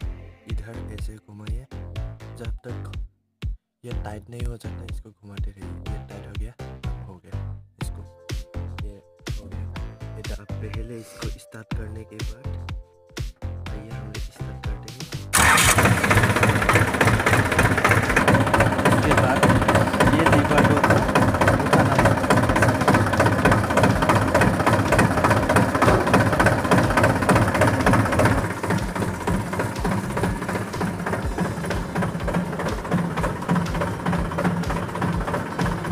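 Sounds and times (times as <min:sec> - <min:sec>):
diesel tractor engine running: 0:15.3 - 0:35.9.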